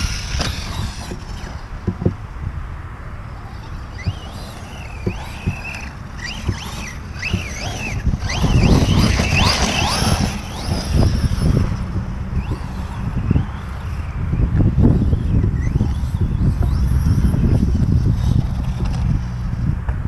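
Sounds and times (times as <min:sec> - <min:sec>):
electric motor whining: 0:00.0 - 0:02.0, 0:03.3 - 0:19.7.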